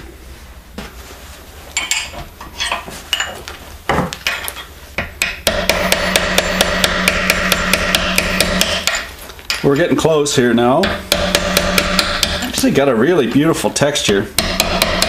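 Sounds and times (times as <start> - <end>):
hammer striking chisel on metal: 5.0 - 9.7, 10.8 - 12.7, 14.0 - 15.0.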